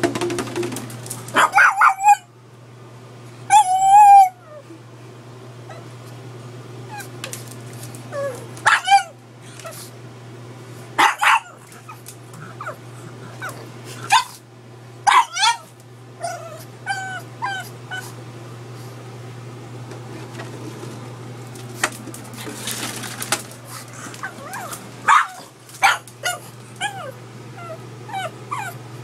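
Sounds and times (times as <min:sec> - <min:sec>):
steady low hum: 0:00.0 - 0:29.0
dog barking: 0:01.3 - 0:02.3, 0:08.6 - 0:09.1, 0:11.0 - 0:11.6, 0:14.1 - 0:14.4, 0:15.0 - 0:15.7, 0:24.5 - 0:27.0
dog whining yips: 0:01.4 - 0:02.3, 0:03.5 - 0:04.6, 0:06.9 - 0:07.1, 0:08.1 - 0:09.8, 0:13.4 - 0:14.4, 0:15.0 - 0:18.1, 0:24.2 - 0:28.8.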